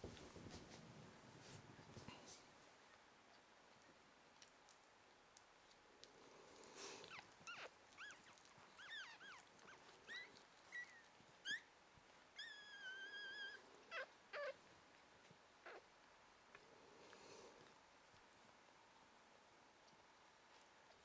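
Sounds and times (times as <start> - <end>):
puppies squeaking and whimpering: 7.0 - 11.7, 12.4 - 14.6.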